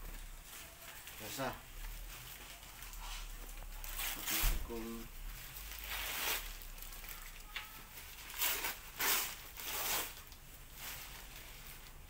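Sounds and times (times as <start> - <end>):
paper tearing and crinkling: 0.6 - 12.0.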